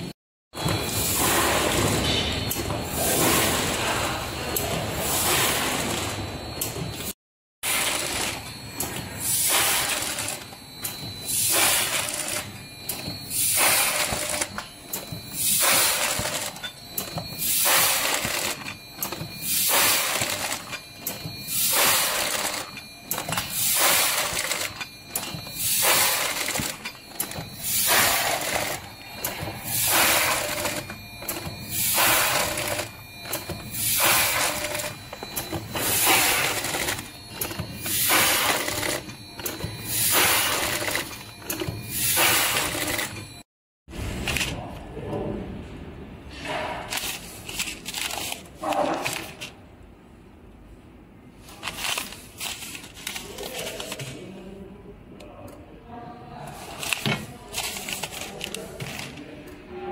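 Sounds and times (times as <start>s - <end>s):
faint steady machine whine: 0.6s - 43.4s
packing machine hissing and rustling: 7.7s - 10.4s, 23.4s - 34.9s.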